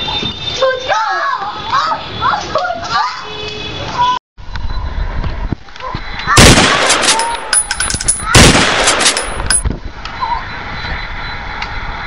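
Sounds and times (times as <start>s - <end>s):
gunshot blast ringing: 6.4s - 7.5s, 8.2s - 9.6s
sharp cracks: 6.4s - 9.7s.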